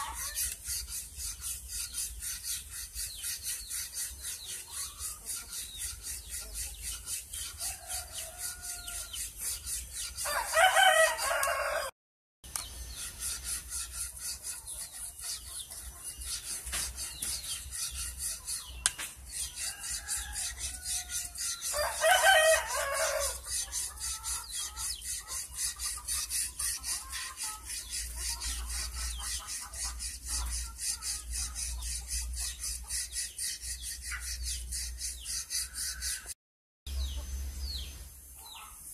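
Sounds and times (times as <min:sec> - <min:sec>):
hand file rasping on wood: 0:00.0 - 0:11.5, 0:12.9 - 0:36.4
rooster crowing: 0:07.6 - 0:09.1, 0:10.2 - 0:11.9, 0:19.6 - 0:23.4.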